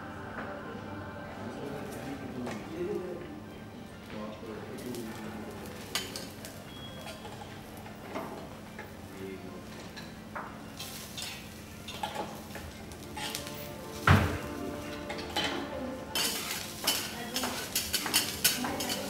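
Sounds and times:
onions sizzling: 4.7 - 8.0, 10.6 - 19.0
metal utensils scraping a griddle: 10.8 - 19.0.

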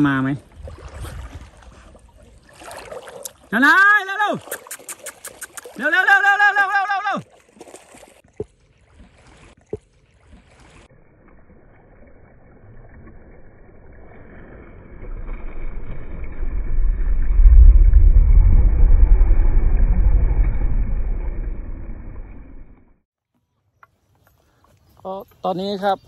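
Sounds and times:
river water washing: 0.0 - 16.7
wind buffeting microphone: 15.2 - 22.7.

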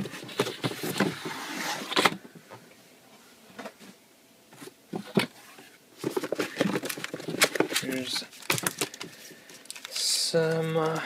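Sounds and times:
cardboard box rustling scrape: 0.0 - 2.2, 5.2 - 8.7.

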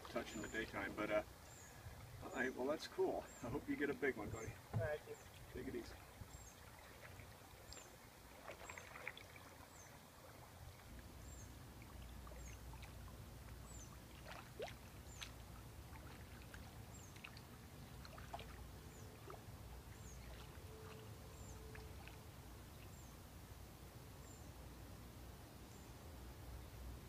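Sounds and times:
soft paddle strokes: 4.2 - 22.9
water dripping off paddle: 6.0 - 18.6, 21.7 - 22.2.

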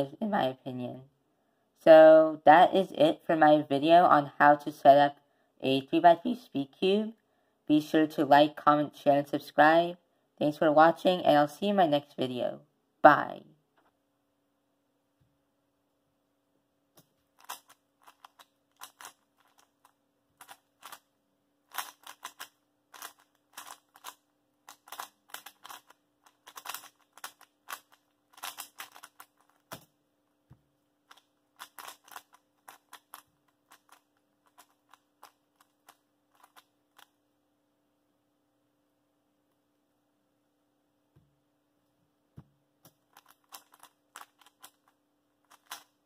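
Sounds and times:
plastic puzzle cube clacking: 17.0 - 30.0, 31.0 - 37.2, 42.8 - 46.0.

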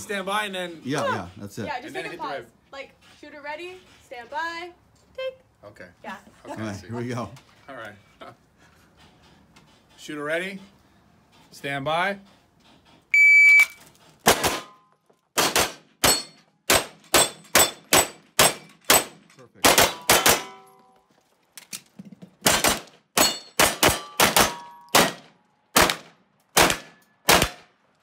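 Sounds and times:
pistol rapid fire: 14.3 - 14.7, 15.4 - 20.5, 22.4 - 27.7
steel targets ringing: 16.0 - 16.4, 19.8 - 21.0, 23.2 - 25.1.

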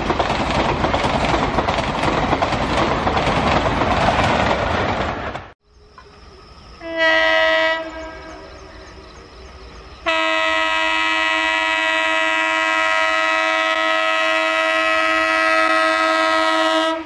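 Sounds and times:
locomotive air horn: 6.8 - 8.4, 10.1 - 17.0.

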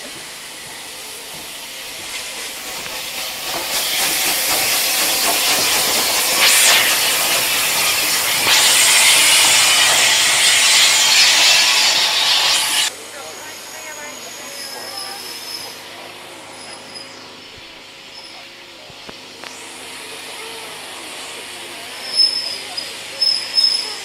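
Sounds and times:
steam hissing: 0.0 - 17.2
steam locomotive moving slowly: 0.0 - 24.0.

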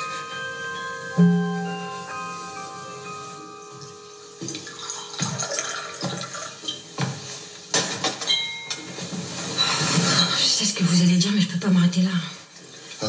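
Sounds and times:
soft mallet percussion music: 0.0 - 6.0.

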